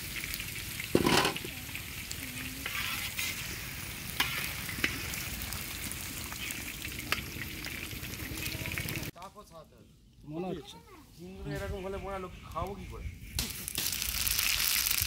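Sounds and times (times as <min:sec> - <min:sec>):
potatoes sizzling in hot oil: 0:00.0 - 0:09.1, 0:13.4 - 0:15.0
metal ladle scraping pan: 0:00.9 - 0:01.5, 0:02.6 - 0:03.6
ladle knocking on pan: 0:01.0 - 0:01.5.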